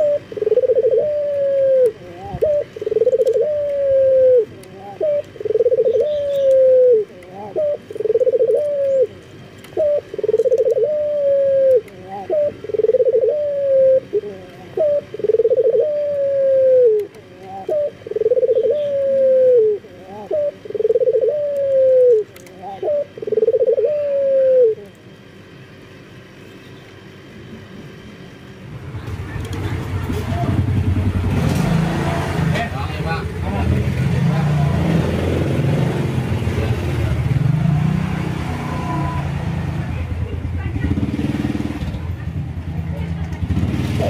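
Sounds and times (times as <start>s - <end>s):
dove cooing: 0.0s - 24.9s.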